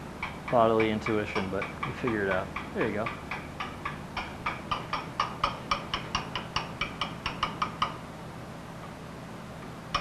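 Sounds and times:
mallet tapping chisel on stone: 0.2s - 8.0s.

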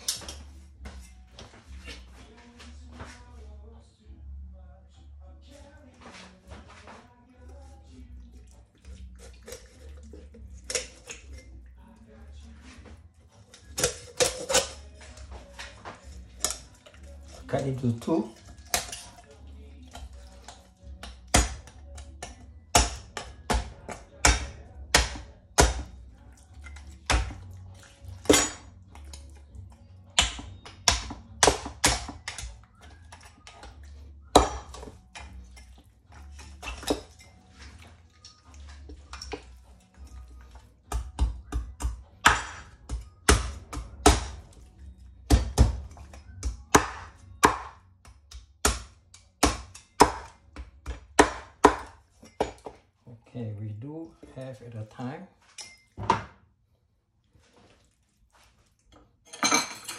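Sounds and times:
cleaver chopping bones on board: 21.0s - 25.9s, 27.0s - 27.4s, 30.2s - 32.6s, 34.3s - 35.3s, 40.9s - 44.4s, 45.3s - 52.6s.

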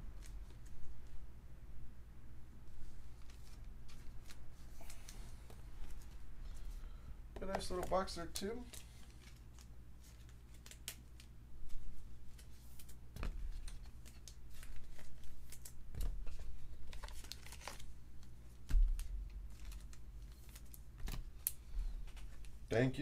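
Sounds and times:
cards clicking and rustling: 7.4s - 22.6s.

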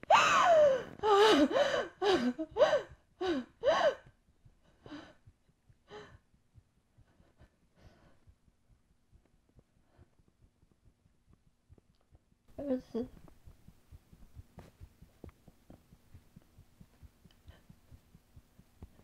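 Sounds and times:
person sobbing: 0.0s - 4.1s.

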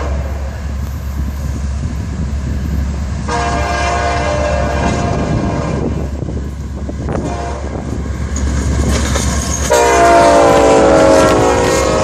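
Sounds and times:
diesel locomotive engine rumble: 0.0s - 12.0s
train air horn chord: 3.3s - 6.1s, 7.2s - 7.8s, 9.7s - 12.0s.

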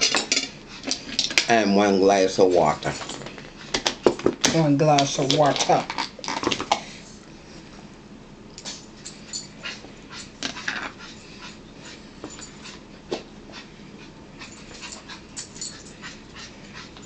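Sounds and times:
dog panting: 9.4s - 17.0s.

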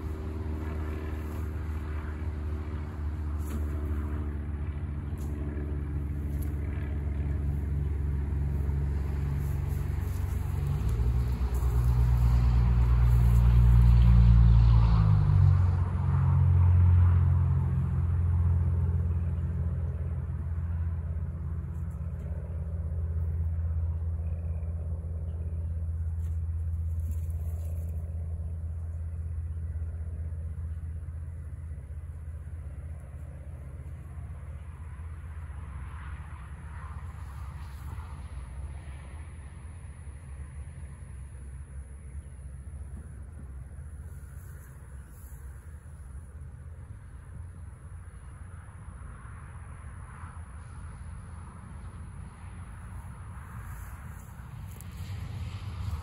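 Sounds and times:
low engine rumble: 0.0s - 56.0s.

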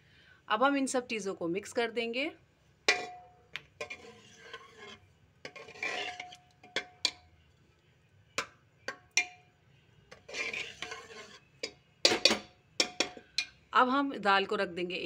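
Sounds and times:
ladle scraping pot: 2.8s - 7.2s, 8.4s - 9.4s, 10.1s - 13.6s
ladle clinking metal pot: 2.8s - 7.3s, 8.4s - 13.6s.

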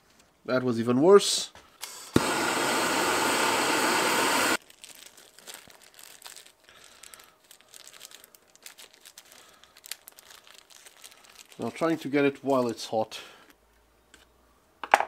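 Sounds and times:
gas torch flame hissing: 1.8s - 4.6s
plastic packet crinkling: 4.6s - 12.8s.

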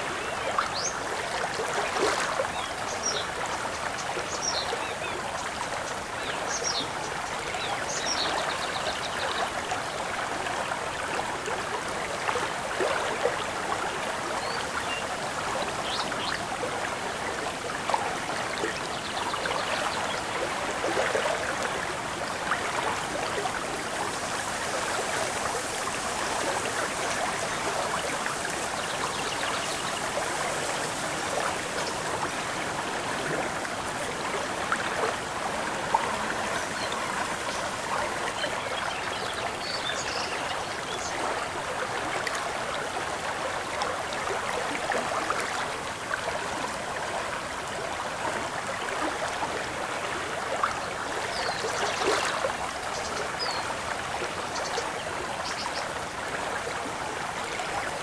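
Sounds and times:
water lapping against shore: 10.0s - 58.0s.

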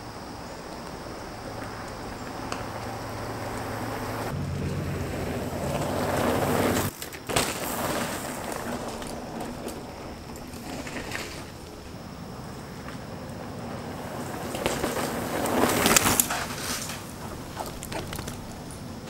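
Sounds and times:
low hum: 0.0s - 6.9s
bike tyres rolling on dirt: 0.0s - 19.0s.

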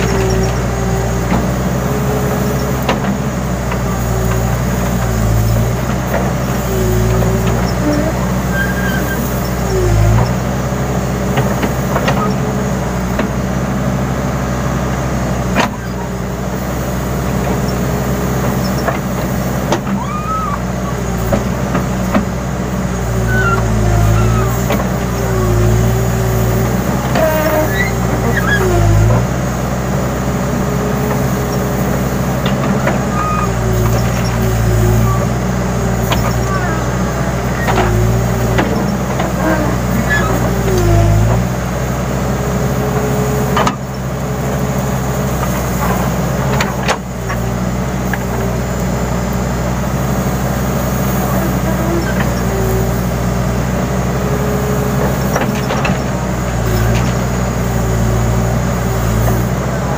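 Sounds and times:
diesel engine running: 0.0s - 59.9s
brief squeals: 7.6s - 10.3s, 19.9s - 21.0s, 23.2s - 25.4s, 27.0s - 29.1s, 33.1s - 35.3s, 39.3s - 41.2s.

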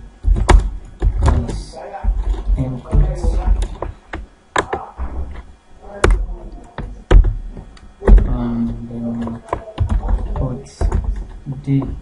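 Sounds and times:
low hum: 0.0s - 12.0s.

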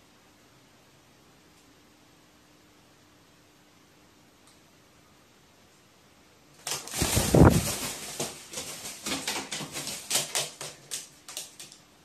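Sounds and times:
bird scuffling: 6.6s - 11.8s.

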